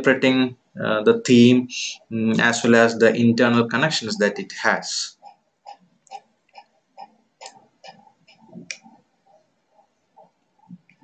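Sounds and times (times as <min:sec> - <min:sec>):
faint regular ticking: 0:03.6 - 0:11.0.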